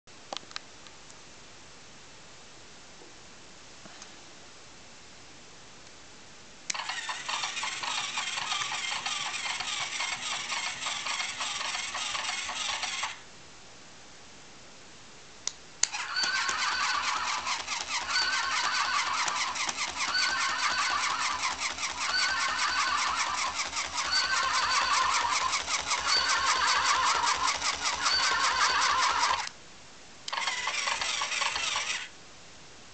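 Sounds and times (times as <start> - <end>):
small motor whirring: 6.7 - 13.2, 15.9 - 29.5, 30.3 - 32.1
toy click: 6.7 - 13.2, 15.8 - 29.6, 30.3 - 32.1
toy trotting noise: 6.7 - 13.2, 15.8 - 29.5, 30.3 - 32.1.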